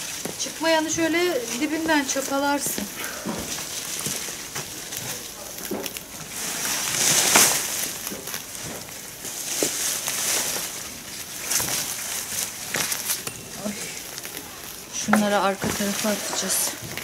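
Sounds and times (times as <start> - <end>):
dry stalks rustling: 0.0 - 17.0
hoe scraping dry soil: 14.7 - 17.0.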